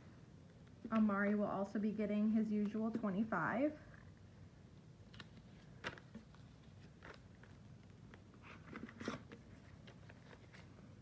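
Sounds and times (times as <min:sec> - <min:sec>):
paper and plastic rustling: 0:05.1 - 0:10.9.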